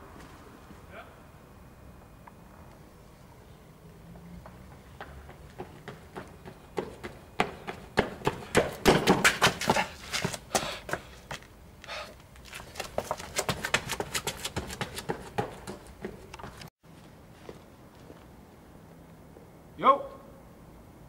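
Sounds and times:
running footsteps on pavement: 0:03.7 - 0:18.3.

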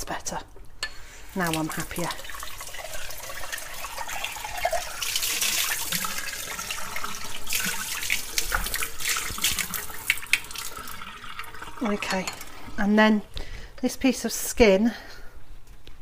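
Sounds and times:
tap water running into sink: 0:01.3 - 0:12.8
water splashing: 0:01.3 - 0:12.8.

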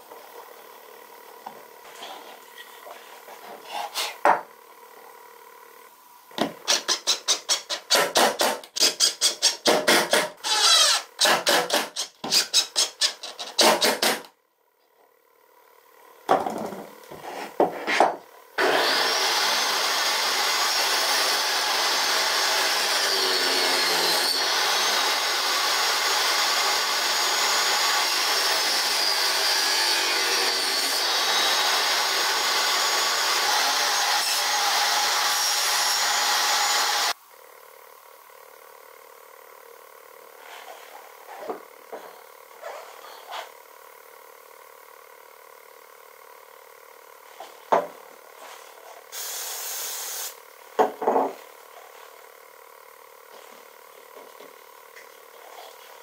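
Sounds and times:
table saw cutting wood: 0:06.7 - 0:14.3, 0:18.6 - 0:37.2, 0:48.4 - 0:50.4.

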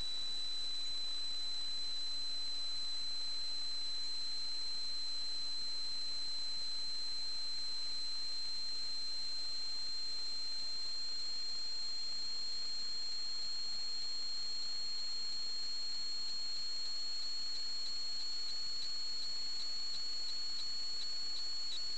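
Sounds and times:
faint tiny ticks: 0:16.6 - 0:21.9.

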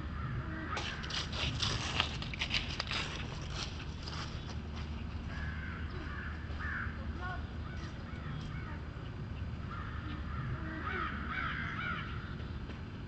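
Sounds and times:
crows cawing: 0:00.0 - 0:01.2, 0:05.3 - 0:08.8, 0:09.6 - 0:12.4.

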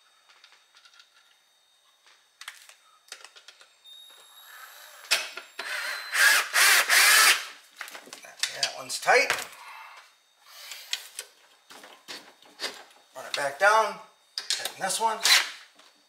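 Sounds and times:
cordless drill driving bolt: 0:15.2 - 0:15.6.

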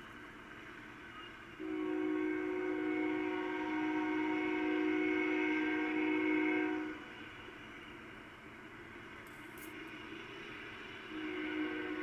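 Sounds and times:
locomotive air horn blast: 0:01.6 - 0:07.1, 0:11.1 - 0:12.0.

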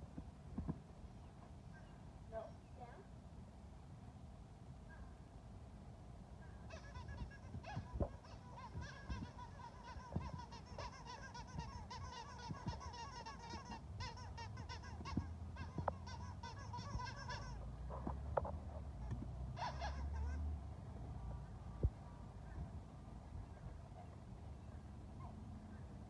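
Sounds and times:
squeaky dog toy squeaking: 0:06.7 - 0:18.1, 0:19.0 - 0:20.5.

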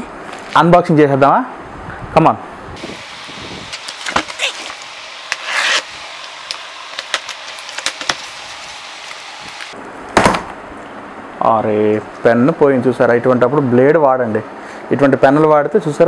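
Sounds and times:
tape tearing rip: 0:03.7 - 0:09.7
pen scraping packing tape: 0:05.3 - 0:08.3
thump on cardboard box: 0:10.2 - 0:10.5.

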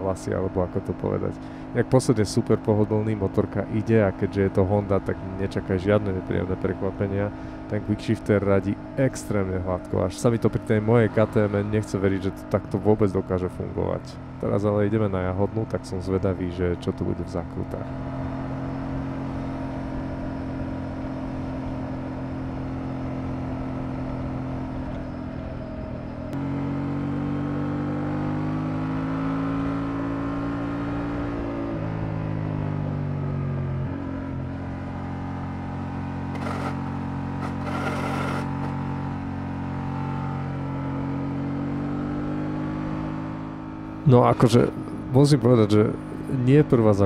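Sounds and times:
motorcycle engine: 0:00.0 - 0:47.0.

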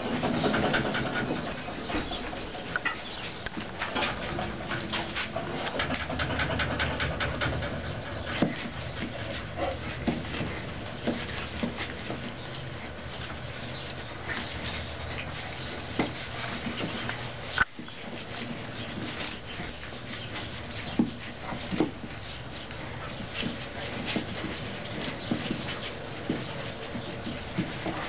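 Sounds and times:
paws scratching on blanket: 0:02.5 - 0:28.0
puppies squeaking: 0:06.7 - 0:22.4.

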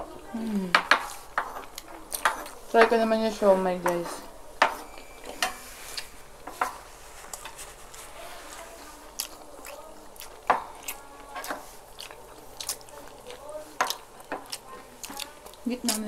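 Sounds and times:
soft eating sounds: 0:00.0 - 0:16.0
cutlery clinking on dishes: 0:00.7 - 0:07.6.

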